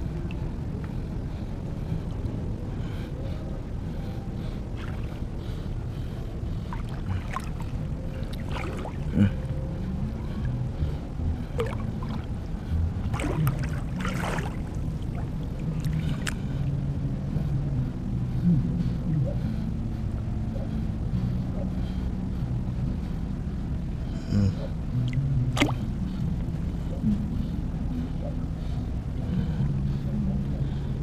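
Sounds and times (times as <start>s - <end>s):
steady low rumble: 0.0s - 31.0s
seawater sloshing and splashing: 4.8s - 5.6s, 6.6s - 9.2s, 13.0s - 16.5s, 25.5s - 25.9s.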